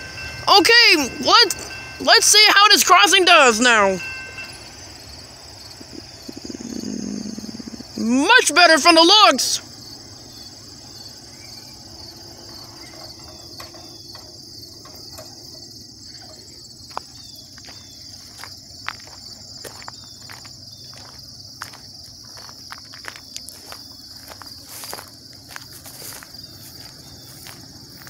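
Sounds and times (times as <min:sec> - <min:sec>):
insect chorus: 0:00.0 - 0:28.0
footsteps on gravel: 0:16.4 - 0:28.0.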